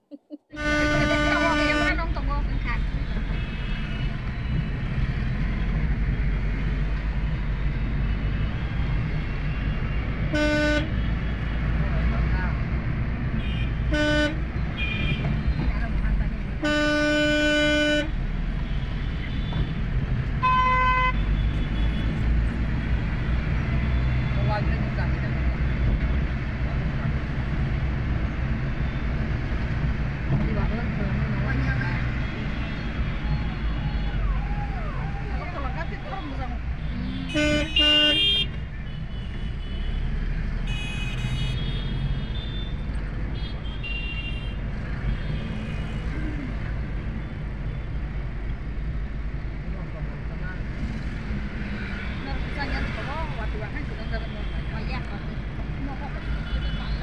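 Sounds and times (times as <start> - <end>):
road traffic rumbling: 0.0 - 57.0
higher horn beeps: 0.5 - 2.1, 16.6 - 18.1, 36.8 - 38.5
vehicle horn honking: 0.5 - 2.2, 10.3 - 11.1, 13.4 - 15.3, 16.6 - 18.2, 20.4 - 22.1, 36.8 - 40.1, 40.7 - 46.1.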